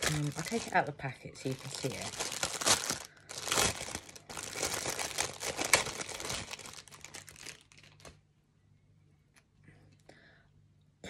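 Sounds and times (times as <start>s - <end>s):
plastic packet crinkling: 0.0s - 8.2s.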